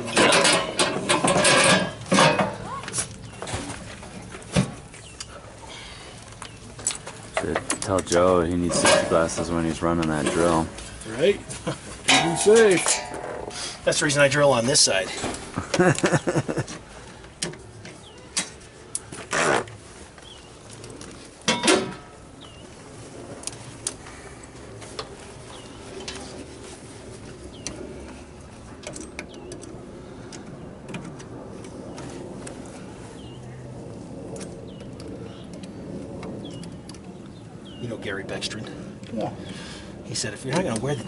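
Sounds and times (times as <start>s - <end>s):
metal knocks and clunks: 0.0s - 2.6s, 12.1s - 13.6s
low steady hum: 0.0s - 19.1s.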